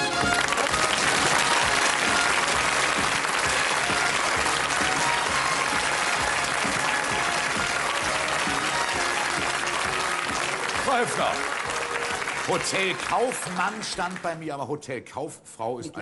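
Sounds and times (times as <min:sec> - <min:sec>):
audience applauding: 0:00.0 - 0:14.6
background music: 0:00.0 - 0:16.0.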